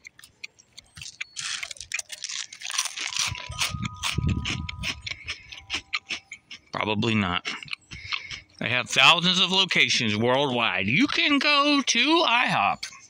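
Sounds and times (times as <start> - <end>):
cereal crunching: 0.0 - 8.8.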